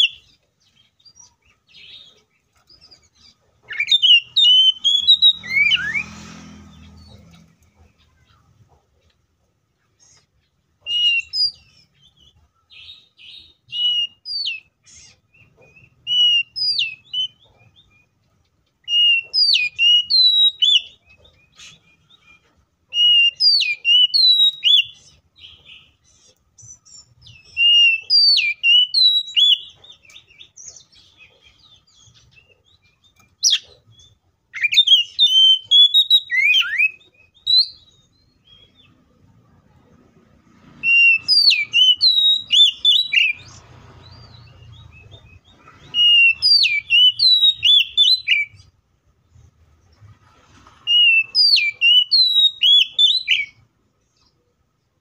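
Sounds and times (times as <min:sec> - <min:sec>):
bird singing whistled phrases: 0:03.7 - 0:06.1, 0:10.9 - 0:11.7, 0:12.8 - 0:14.7, 0:15.7 - 0:18.1, 0:18.8 - 0:25.0, 0:26.8 - 0:30.2, 0:34.6 - 0:38.8, 0:40.8 - 0:48.7, 0:50.9 - 0:53.6.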